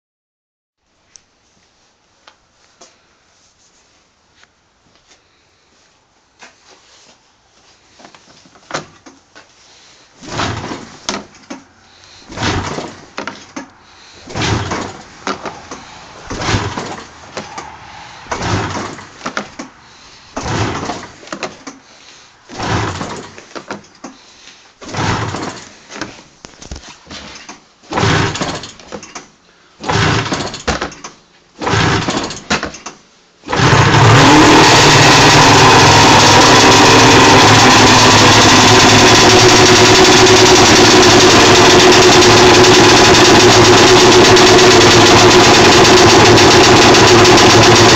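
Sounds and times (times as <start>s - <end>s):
snowmobile engine bursts: 33.5s - 47.9s.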